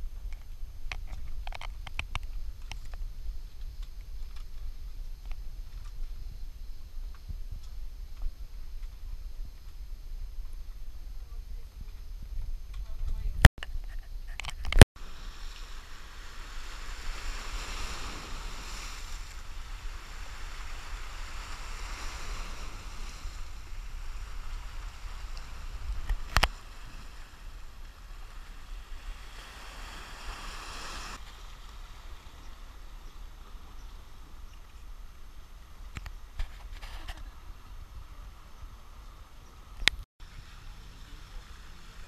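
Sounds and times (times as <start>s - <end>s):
wind rumble on microphone: 0.0s - 42.0s
waves washing over rocks: 15.0s - 32.8s, 40.4s - 42.0s.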